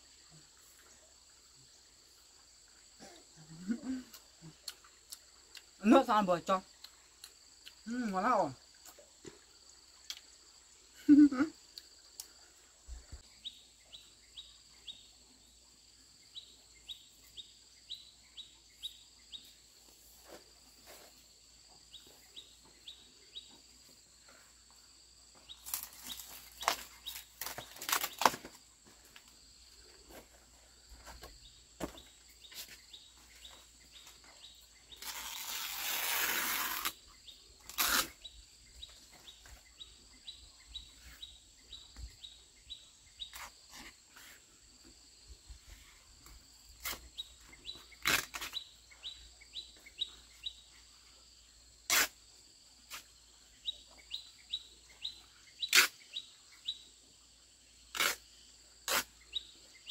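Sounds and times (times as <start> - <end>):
small birds chirping: 0.0 - 44.9, 45.5 - 52.1, 52.9 - 59.9
leaves crackling and rustling: 25.6 - 28.6, 34.9 - 37.0, 37.6 - 38.2.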